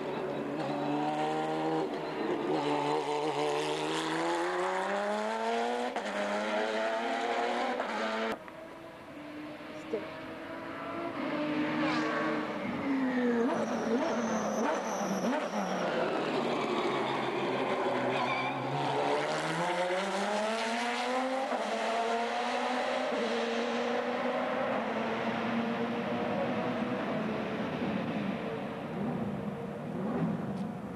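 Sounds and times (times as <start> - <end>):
race car engine revving: 0.5 - 8.4, 18.6 - 30.7.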